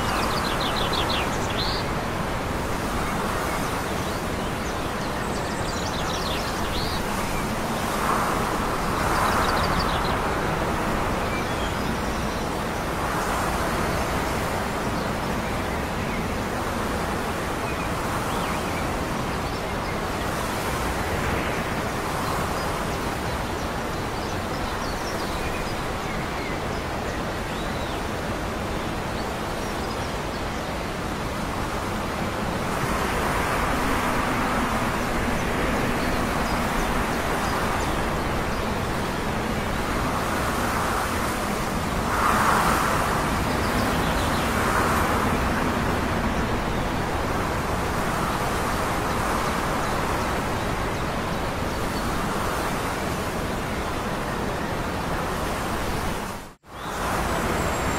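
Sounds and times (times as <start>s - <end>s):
steady wind-like noise: 0.0s - 57.9s.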